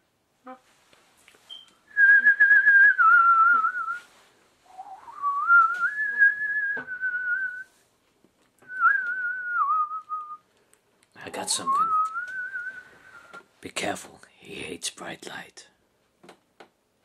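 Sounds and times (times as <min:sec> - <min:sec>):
person whistling a tune: 0:01.5 - 0:04.1, 0:04.7 - 0:07.7, 0:08.7 - 0:10.4, 0:11.6 - 0:13.4.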